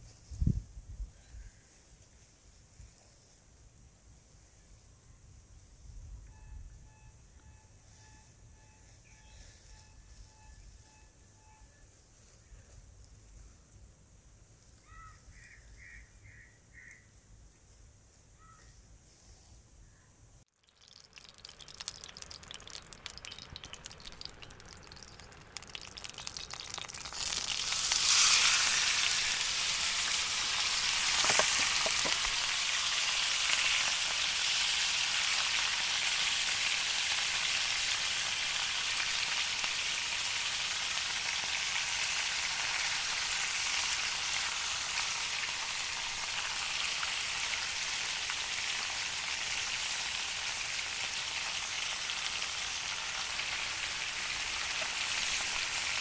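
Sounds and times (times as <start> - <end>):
food sizzling in hot oil: 20.5 - 56.0
oil crackling in a pan: 20.5 - 56.0.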